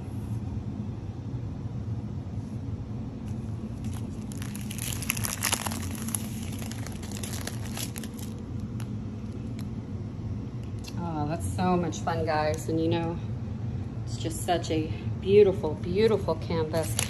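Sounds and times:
steady low hum: 0.0s - 17.0s
plastic crinkling: 3.4s - 9.7s, 16.8s - 17.0s.

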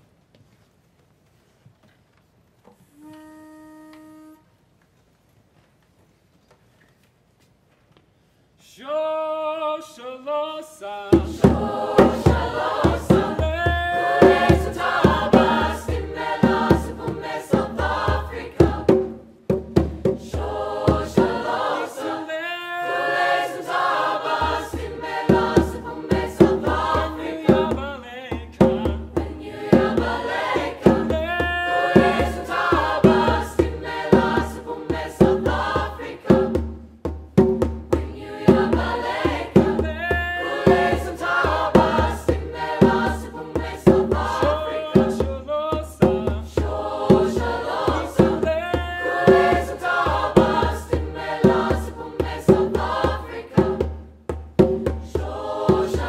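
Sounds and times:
mixed choir singing: 11.1s - 19.3s, 20.1s - 28.0s, 29.0s - 36.7s, 37.9s - 54.1s, 55.1s - 56.0s.

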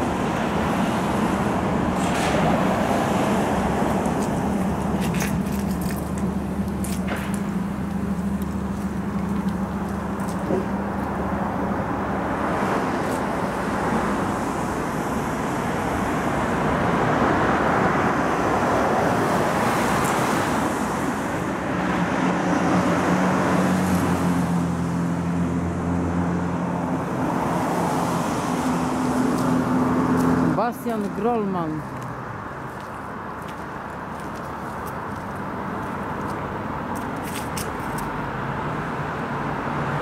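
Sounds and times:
engine humming: 0.0s - 40.0s
road traffic passing: 0.0s - 40.0s.

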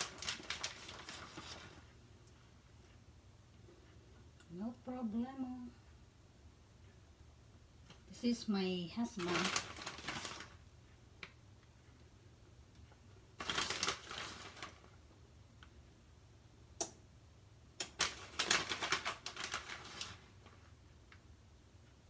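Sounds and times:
hands rustling shredded cheese: 0.0s - 1.9s.

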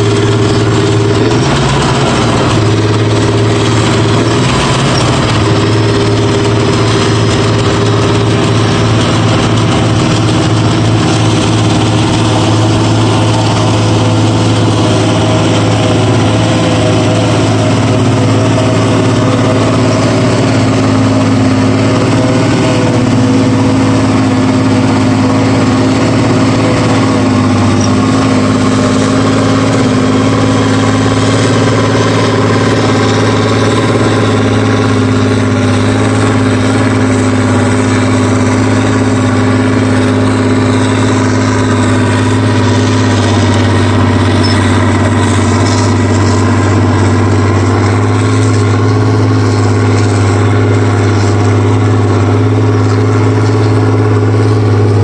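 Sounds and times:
forage harvester chopping grass: 0.0s - 55.0s
tractor diesel engine running: 0.0s - 55.0s.

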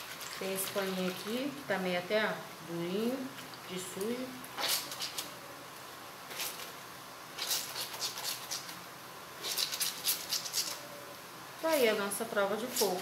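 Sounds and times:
wet cloth squelching in soapy water: 0.0s - 1.7s.

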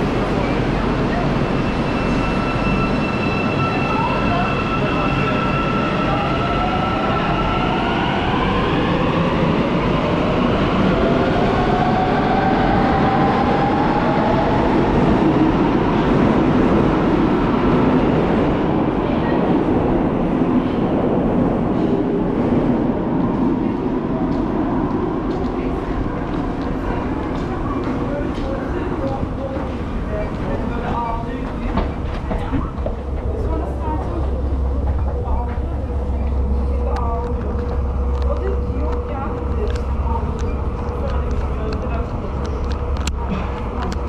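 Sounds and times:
train rumble: 0.0s - 44.0s.

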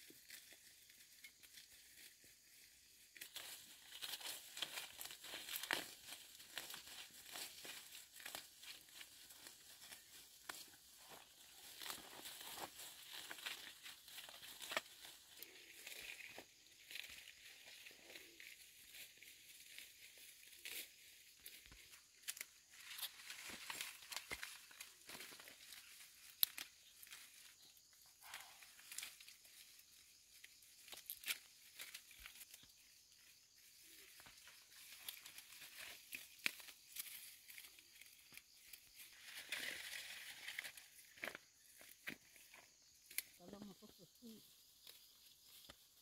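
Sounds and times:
leaves and grass rustling: 0.0s - 46.0s.

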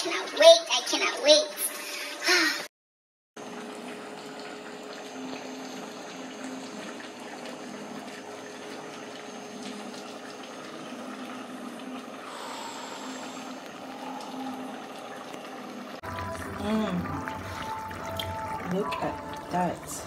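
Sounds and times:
sauce bubbling in pot: 3.4s - 20.0s.

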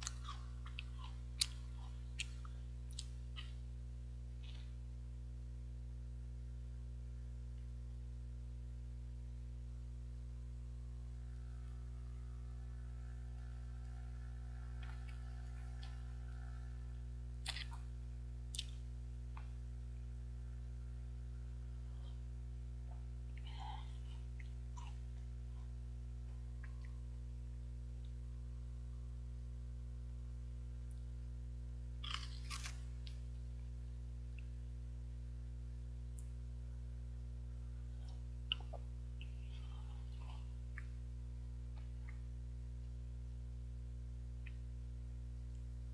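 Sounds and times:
chocolate bar crunching: 0.0s - 3.6s, 32.0s - 33.3s
faint chewing: 0.0s - 3.6s, 13.4s - 19.6s, 32.0s - 33.6s
steady low hum: 0.0s - 45.9s.

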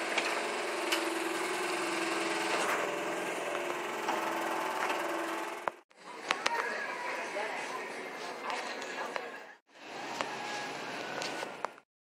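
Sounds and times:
mechanical whir with rattle: 0.0s - 5.8s.

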